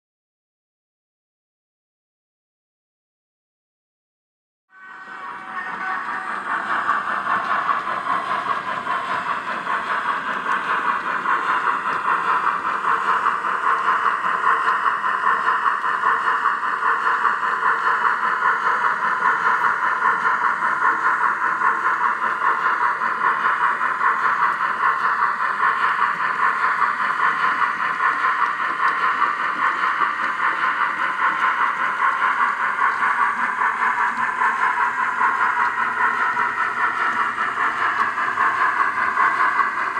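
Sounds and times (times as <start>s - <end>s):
model train whirring and clattering: 4.7s - 39.9s.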